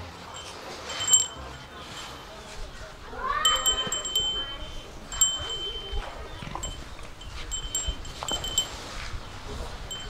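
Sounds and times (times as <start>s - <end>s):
high chime tones: 0.3s - 2.5s, 3.3s - 6.2s.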